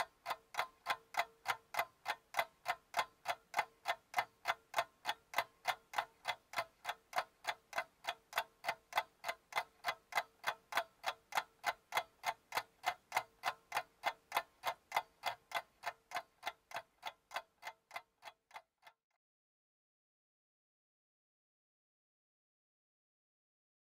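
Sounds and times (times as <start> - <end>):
clock-like ticking: 0.0 - 19.0.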